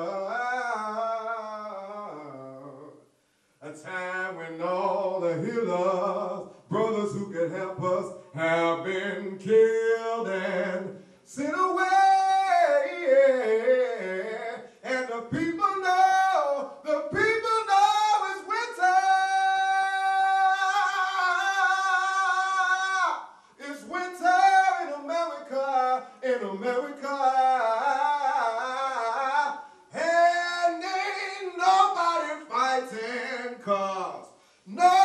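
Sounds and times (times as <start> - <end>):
man singing unaccompanied: 0.0 - 35.0
singer breathing: 3.1 - 3.6, 10.9 - 11.3, 14.6 - 14.8, 23.3 - 23.6, 29.6 - 29.9, 34.3 - 34.7.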